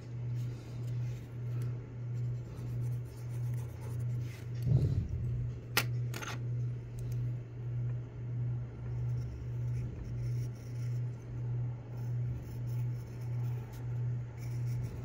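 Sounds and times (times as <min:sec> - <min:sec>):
low pulsing hum: 0:00.0 - 0:15.0
pencil scratching on paper: 0:02.1 - 0:04.8, 0:08.9 - 0:11.2, 0:11.9 - 0:15.0.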